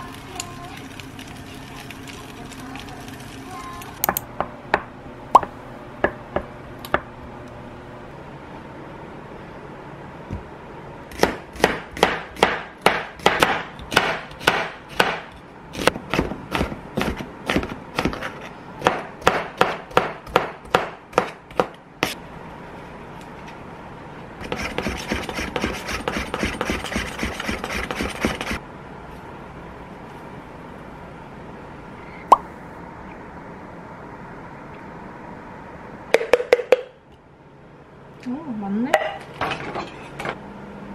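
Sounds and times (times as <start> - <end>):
knife chopping on cutting board: 11.1 - 22.2.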